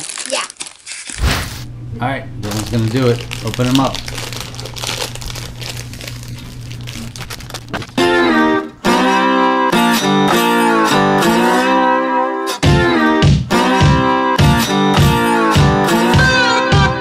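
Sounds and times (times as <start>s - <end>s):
plastic bags crinkling: 0.0s - 1.6s, 2.4s - 8.1s
background music with plucked guitar: 8.0s - 17.0s.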